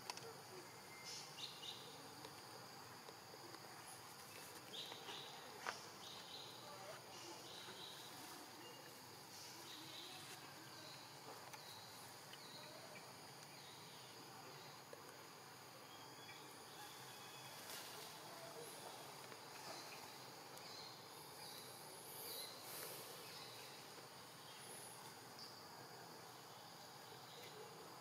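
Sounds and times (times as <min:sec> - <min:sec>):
insect buzzing calls: 0:00.0 - 0:28.0
soft hiss: 0:00.0 - 0:28.0.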